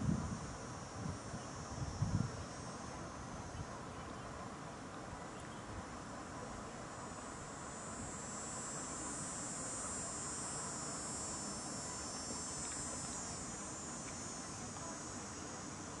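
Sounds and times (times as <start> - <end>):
high-pitched insect buzzing: 0.0 - 3.6, 7.0 - 16.0
outdoor hiss: 0.0 - 16.0.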